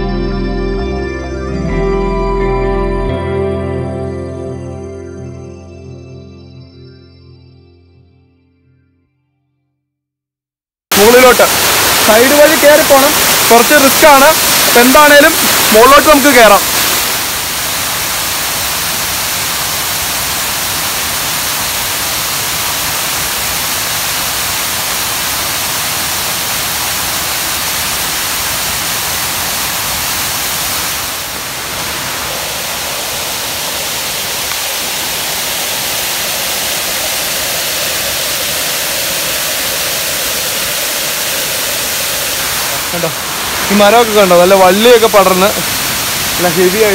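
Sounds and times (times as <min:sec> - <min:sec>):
small waterfall rushing: 0:10.9 - 0:46.9.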